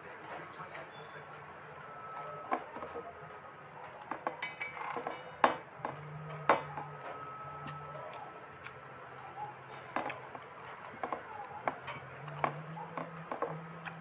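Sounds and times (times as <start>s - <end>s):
metal plate clinking and scraping: 4.4s - 5.4s.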